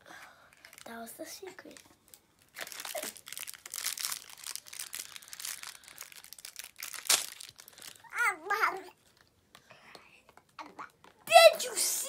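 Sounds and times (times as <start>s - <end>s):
plastic wrapper crinkling: 0.5s - 8.2s
sharp loud crackle: 6.4s - 7.8s.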